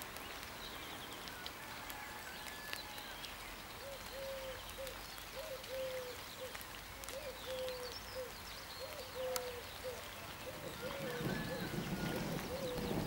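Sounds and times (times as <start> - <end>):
small birds chirping: 0.0 - 1.5, 2.4 - 13.0
dove cooing: 8.8 - 13.0.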